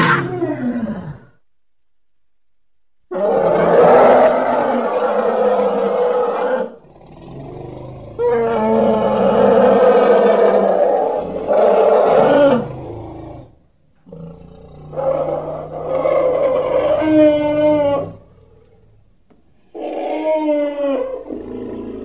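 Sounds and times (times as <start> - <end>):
elephants calling: 14.9 - 18.6.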